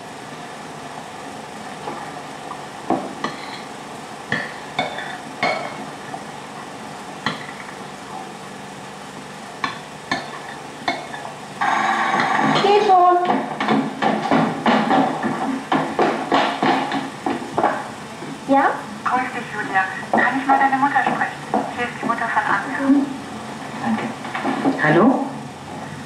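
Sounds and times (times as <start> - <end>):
cutlery clinking on a plate: 3.3 - 3.7.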